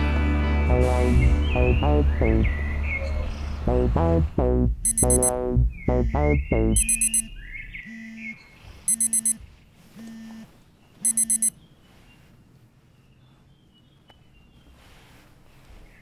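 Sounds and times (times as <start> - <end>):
phone alarm beeping: 4.8 - 5.4, 6.8 - 7.3, 8.9 - 9.4, 10.0 - 11.6.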